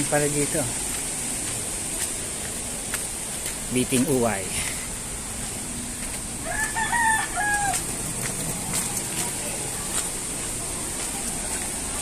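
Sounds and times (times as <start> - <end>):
steady high hiss: 0.0 - 6.5
rooster crowing: 6.4 - 7.9.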